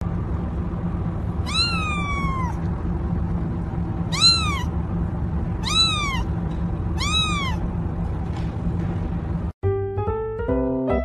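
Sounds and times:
low steady hum: 0.0s - 9.6s
cat meowing: 1.4s - 2.6s, 4.1s - 4.7s, 5.6s - 6.3s, 7.0s - 7.6s.

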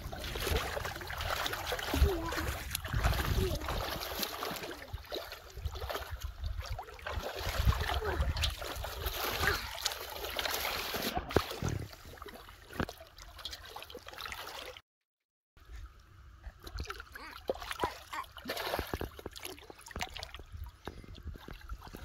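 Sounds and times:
muddy water splashing: 0.0s - 14.8s, 15.7s - 22.0s.

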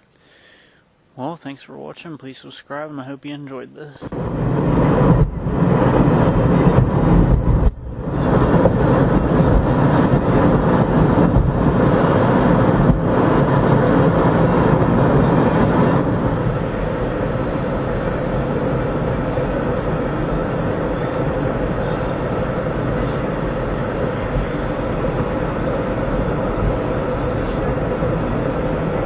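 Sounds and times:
car road and wind noise: 4.0s - 29.0s.

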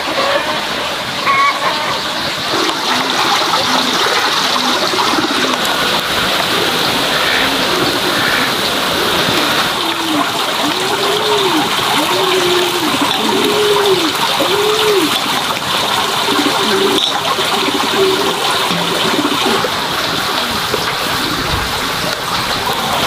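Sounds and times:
running water: 0.0s - 23.0s.

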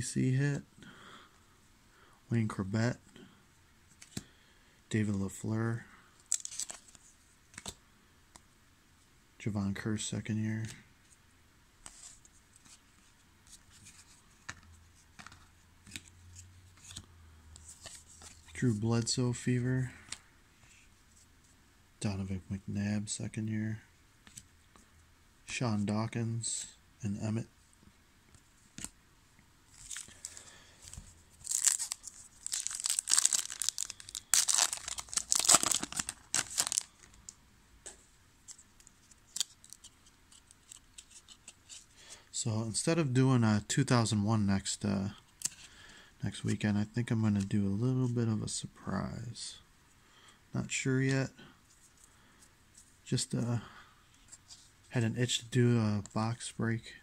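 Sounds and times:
light ticks of cards handled: 3.9s - 4.3s
trading cards flipped by hand: 6.3s - 7.8s
foil wrapper tearing and crinkling: 31.4s - 37.1s.

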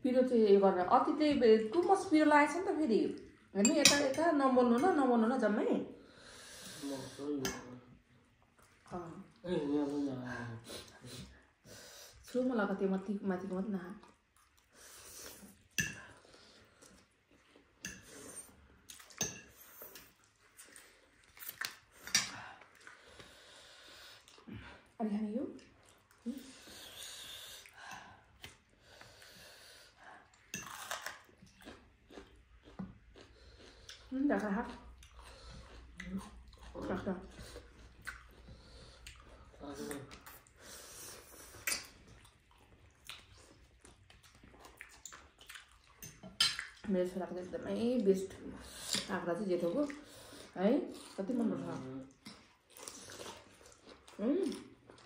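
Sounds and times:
wet eating sounds: 6.0s - 12.4s, 13.0s - 55.0s.

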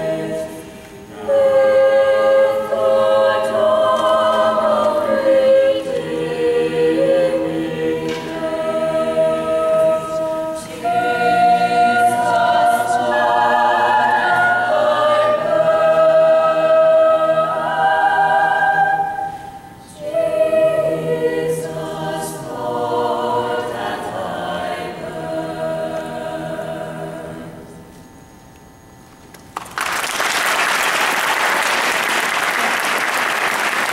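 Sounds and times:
choir singing chords: 0.0s - 28.2s
audience applause: 29.6s - 33.9s.

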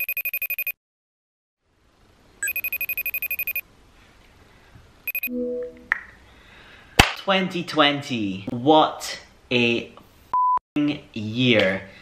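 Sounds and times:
trilling phone ringtone: 0.0s - 0.8s, 2.4s - 3.6s, 5.1s - 5.8s
brief lower tone: 5.1s - 5.9s.

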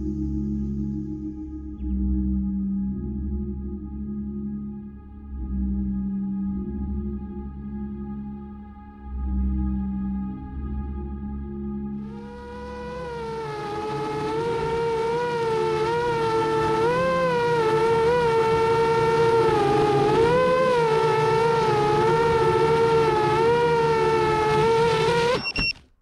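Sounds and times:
quadcopter motors whining: 12.0s - 25.8s.

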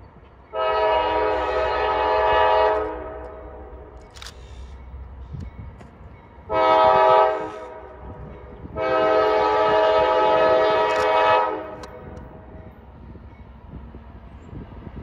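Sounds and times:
freight train rumble: 0.0s - 15.0s
locomotive air horn blasts: 0.5s - 4.0s, 6.5s - 11.9s.

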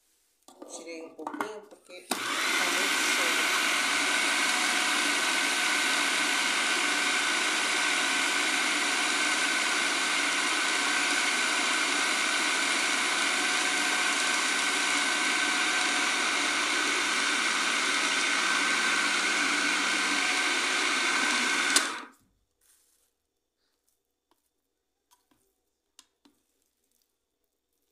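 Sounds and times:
food processor running: 2.1s - 22.1s.

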